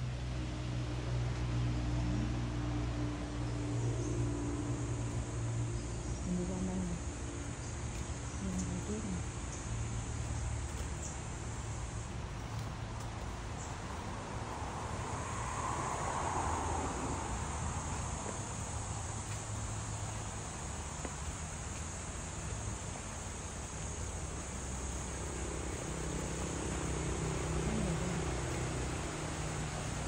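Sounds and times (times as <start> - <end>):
faint hum: 0.6 - 30.0
high-pitched insect drone: 14.8 - 30.0.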